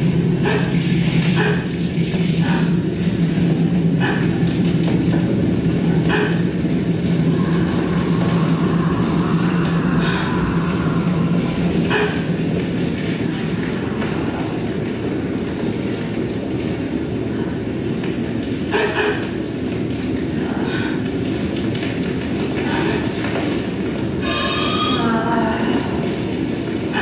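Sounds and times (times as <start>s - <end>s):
low rumbling electronic drone: 0.0s - 27.0s
steady hum: 0.0s - 27.0s
person gasping: 0.4s - 0.7s, 2.4s - 2.8s, 20.4s - 21.1s, 22.6s - 23.2s.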